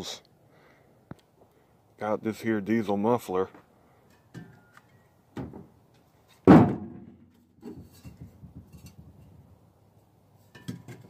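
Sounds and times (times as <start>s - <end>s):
loud metal clunk: 6.4s - 7.9s
sheet metal knocks and rattles: 6.5s - 9.0s.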